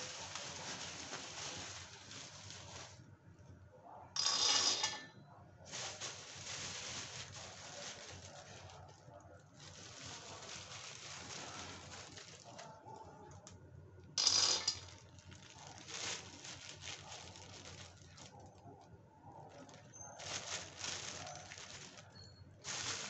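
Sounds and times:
nuts rattling in pan: 4.2 - 5.0, 14.2 - 15.4
metal spatula scraping pan: 4.2 - 5.1.

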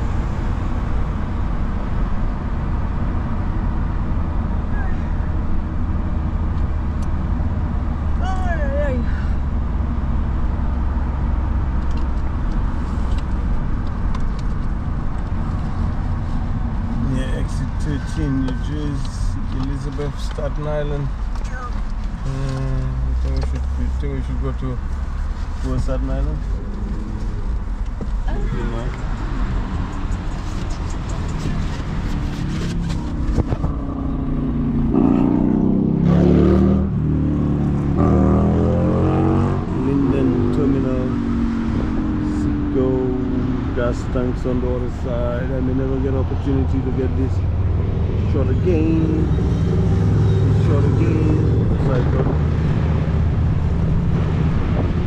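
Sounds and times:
car cabin road rumble: 0.0 - 55.0.

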